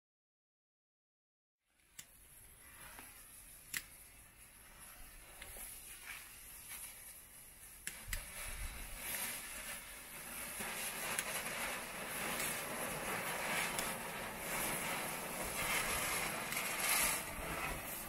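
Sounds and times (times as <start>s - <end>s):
spinning fireworks fizzing: 5.2s - 18.0s.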